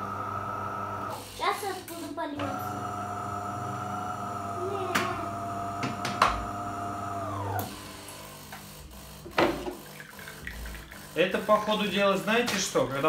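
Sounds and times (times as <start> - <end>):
coffee machine pump humming: 0.0 - 1.3, 2.4 - 13.0.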